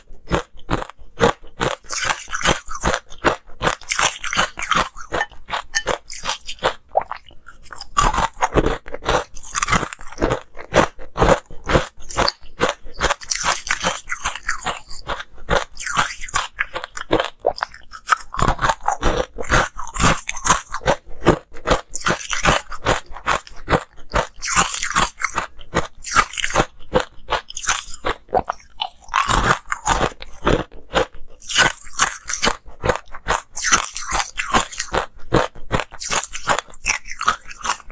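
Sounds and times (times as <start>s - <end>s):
ice cubes crunching when chewed: 0.0s - 37.9s.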